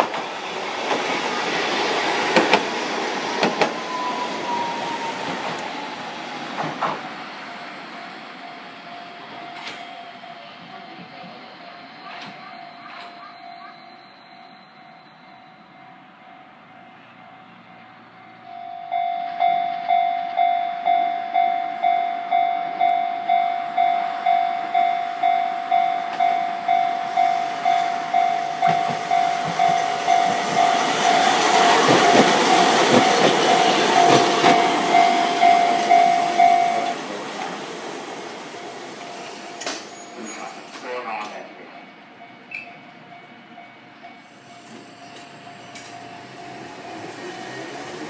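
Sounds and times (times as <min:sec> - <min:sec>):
train passing: 0:00.0 - 0:48.0
level crossing alarm dinging: 0:07.1 - 0:37.2.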